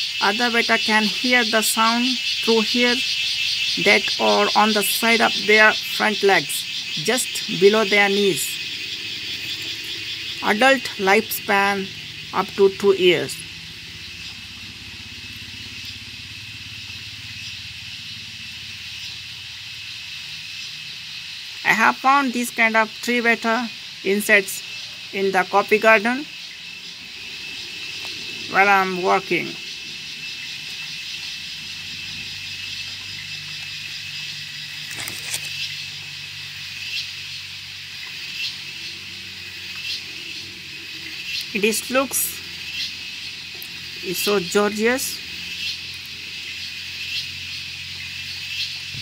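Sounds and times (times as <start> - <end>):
insect chorus drone: 0.0 - 49.0
small engine rumbling: 2.2 - 21.6, 23.8 - 49.0
high hiss: 26.0 - 44.1.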